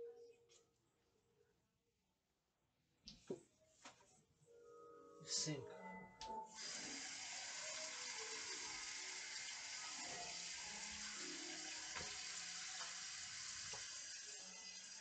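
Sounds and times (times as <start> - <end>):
kitchen tap running: 6.5 - 15.0
water splashing into sink: 6.6 - 15.0.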